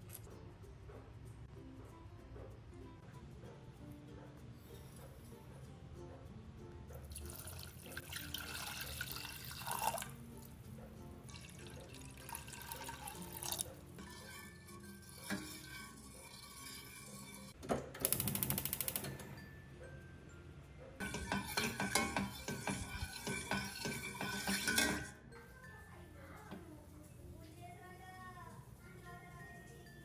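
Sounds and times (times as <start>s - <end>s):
water poured into steel pot: 7.1s - 10.2s, 11.3s - 14.2s.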